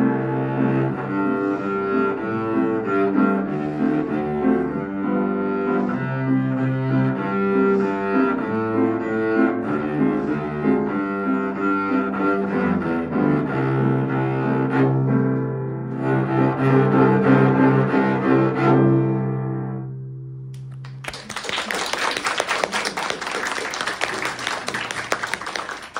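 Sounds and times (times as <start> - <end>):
cello bowed long notes: 0.0 - 20.5
piano accompaniment: 0.0 - 21.0.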